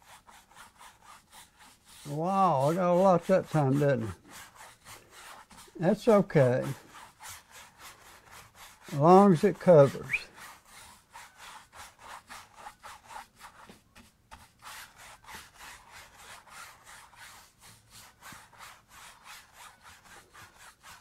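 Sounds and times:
paintbrush scrubbing on canvas: 0.0 - 21.0.

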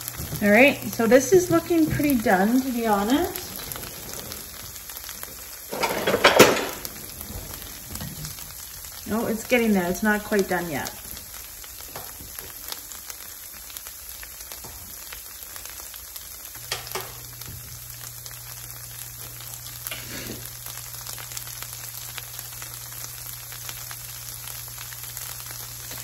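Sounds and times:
cheese sizzling in frying pan: 0.0 - 26.0.

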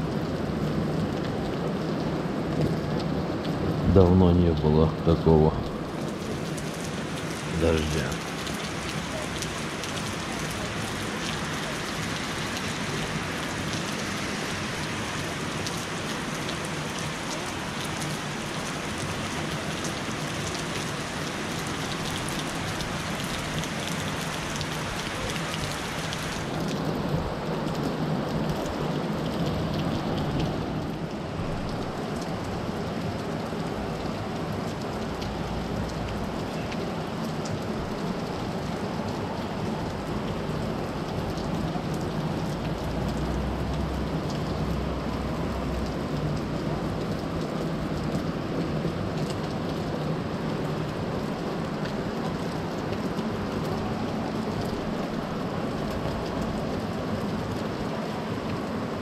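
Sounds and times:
heavy rain on foliage: 0.0 - 59.0.

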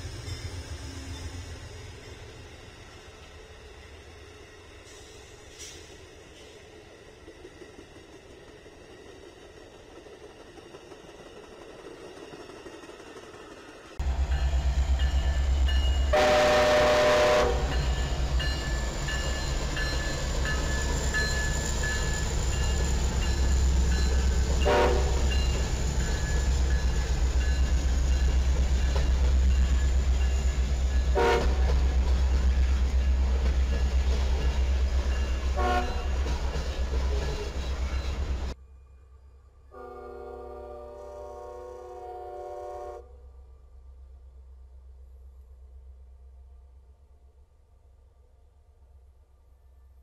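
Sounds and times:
diesel locomotives rumbling: 0.0 - 47.4
locomotive horn blasts: 16.1 - 17.8, 24.6 - 25.3, 31.1 - 31.8, 35.6 - 36.0, 39.7 - 43.1.

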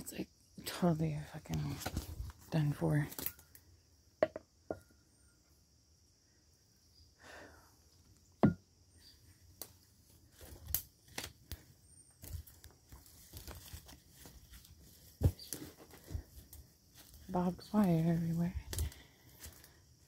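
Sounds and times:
twigs crackling: 1.6 - 3.7, 9.5 - 20.0
leaves crunching: 9.6 - 19.8
footsteps through dry undergrowth: 9.7 - 20.0
sharp twig snaps: 10.6 - 11.6.

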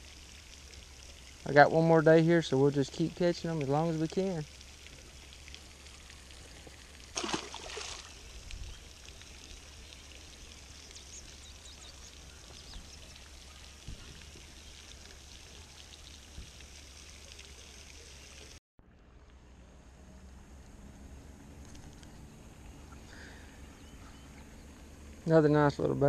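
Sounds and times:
pond fountain splashing: 0.0 - 26.0
short loud splash: 7.2 - 8.2.

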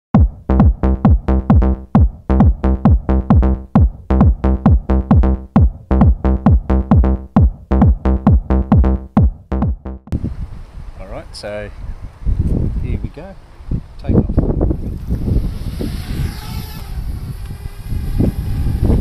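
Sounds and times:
deep bass: 0.0 - 10.3
drum machine hits dropping in pitch: 0.1 - 10.2.

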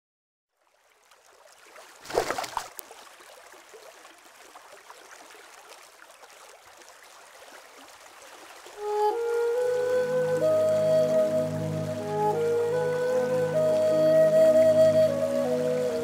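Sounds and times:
stream water flowing: 0.5 - 16.0
water splash: 1.0 - 8.9.

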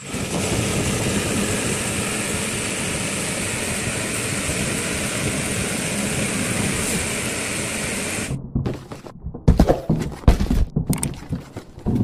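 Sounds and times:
table fan whirring with whine: 0.0 - 8.4.

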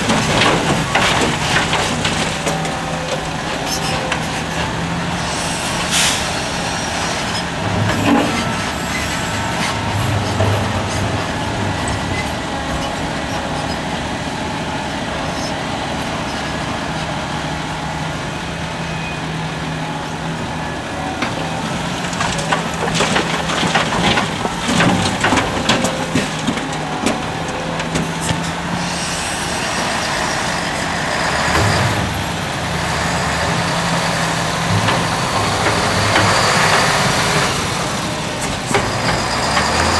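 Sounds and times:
earth and rocks clattering into truck: 0.0 - 4.2, 22.1 - 28.5
heavy diesel engine running under load: 0.0 - 39.9.

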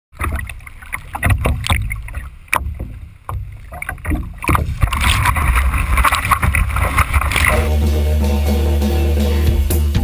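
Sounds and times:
water slapping against board: 0.1 - 7.6
wind buffeting camera: 1.1 - 7.5.

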